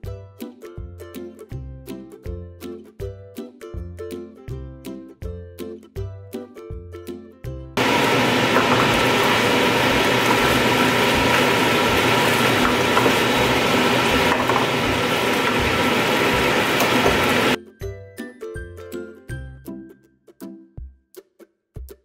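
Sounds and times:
food sizzling in frying pan: 7.8s - 17.6s.

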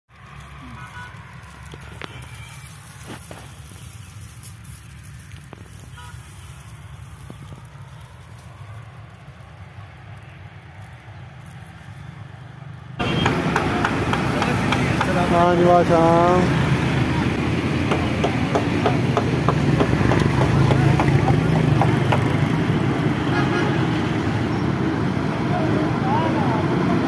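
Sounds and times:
street noise: 0.1s - 27.0s
voices: 13.0s - 22.7s, 25.1s - 27.0s.

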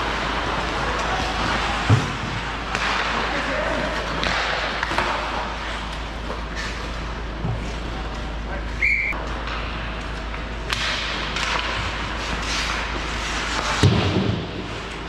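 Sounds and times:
skates scraping and clatter: 0.0s - 15.0s
high whistle blast: 8.8s - 9.2s.

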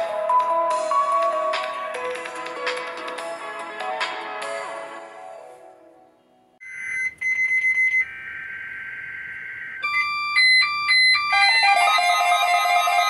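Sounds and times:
music: 0.0s - 6.6s
rapid alternating beeps: 6.6s - 13.0s
raspy high electronic tone: 7.7s - 13.0s.

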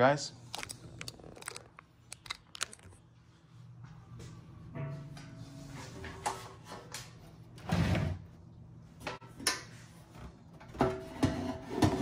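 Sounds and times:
parts clattering: 0.5s - 3.0s.

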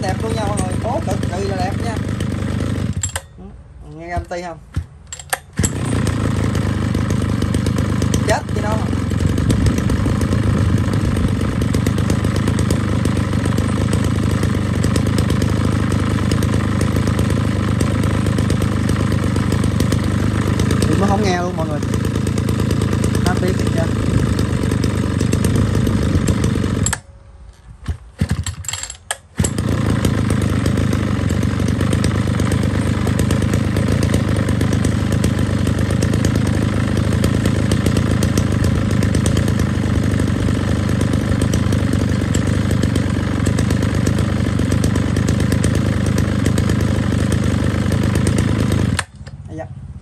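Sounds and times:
brush cutter engine running: 0.0s - 50.0s
clicks: 3.0s - 5.6s.

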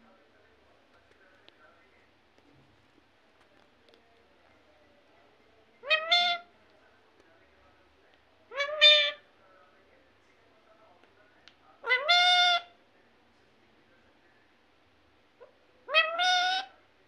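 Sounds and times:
parakeet calling: 5.8s - 6.5s, 8.5s - 9.2s, 11.8s - 12.7s, 15.9s - 16.7s.

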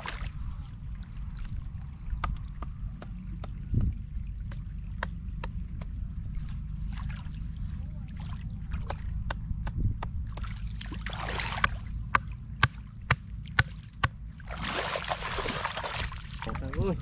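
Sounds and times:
water splashing: 0.0s - 2.4s, 6.4s - 9.1s, 10.3s - 17.0s
wading and sloshing in water: 0.0s - 17.0s
wind rumble on microphone: 0.0s - 17.0s.

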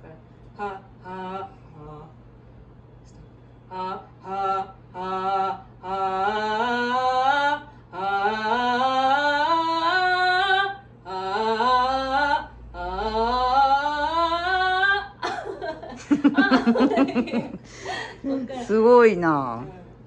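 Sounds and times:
woman singing vocal scales: 0.0s - 2.2s, 3.7s - 15.3s
breaths: 17.6s - 18.3s.

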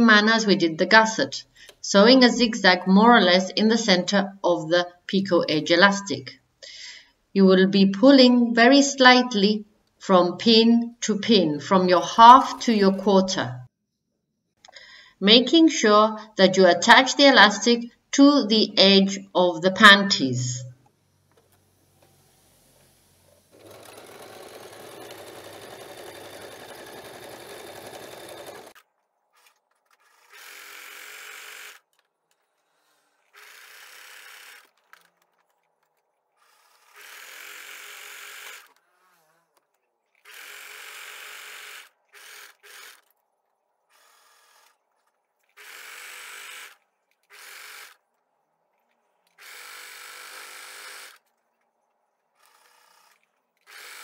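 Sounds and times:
sewing machine stitching: 21.3s - 35.5s, 36.4s - 43.1s, 43.9s - 48.0s, 52.4s - 54.0s.

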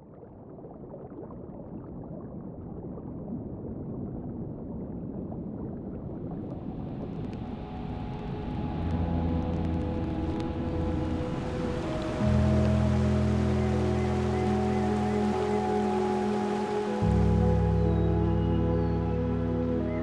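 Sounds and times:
stream water burbling: 5.5s - 20.0s
music: 6.5s - 20.0s.

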